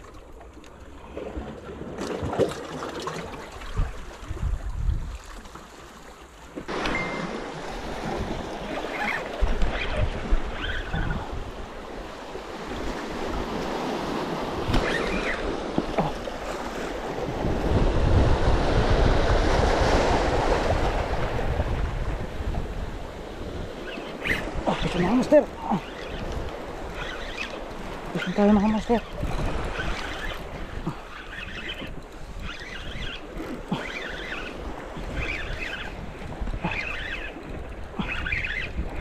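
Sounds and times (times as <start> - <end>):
wind buffeting microphone: 3.6 - 5.3, 6.7 - 39.0.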